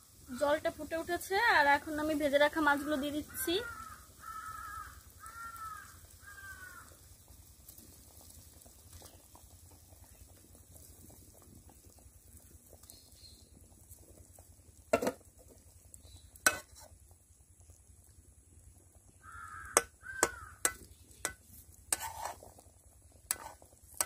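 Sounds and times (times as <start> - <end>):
gravy bubbling in a pan: 0.0 - 24.0
crow cawing: 2.7 - 6.9, 19.2 - 20.7.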